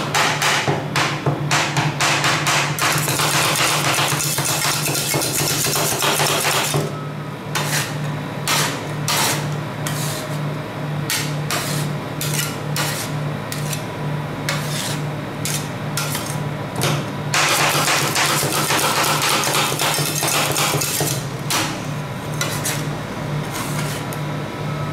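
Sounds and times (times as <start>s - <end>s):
metal spatulas chopping on metal: 0.0s - 6.9s, 7.6s - 10.0s, 11.1s - 13.8s, 14.5s - 21.8s.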